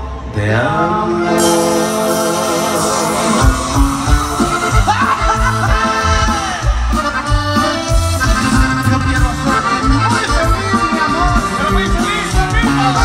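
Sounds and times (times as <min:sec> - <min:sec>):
accordion melody: 0:00.9 - 0:13.0
steady bass beat: 0:03.2 - 0:13.0.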